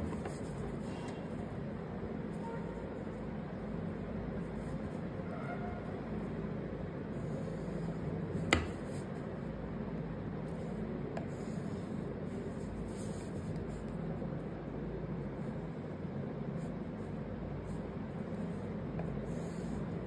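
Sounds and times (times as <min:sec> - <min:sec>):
low room hum: 0:00.0 - 0:20.0
sharp tap on wooden tabletop: 0:08.5 - 0:08.8.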